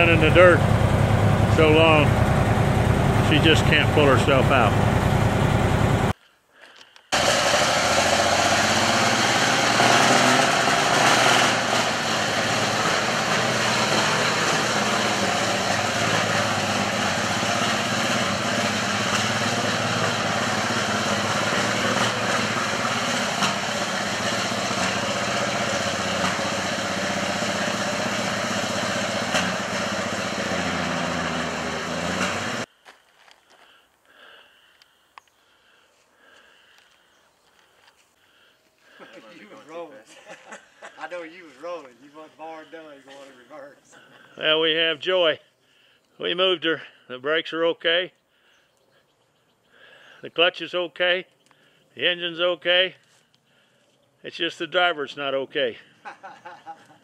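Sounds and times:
heavy truck engine under load: 0.0s - 6.2s, 7.2s - 32.7s.

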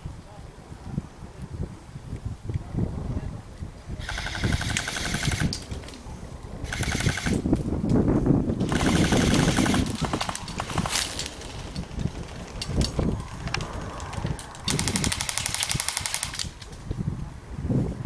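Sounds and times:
airsoft gun firing bursts: 4.0s - 5.6s, 6.6s - 7.4s, 8.6s - 11.6s, 14.7s - 16.6s
rustling through dry grass: 4.1s - 17.1s.

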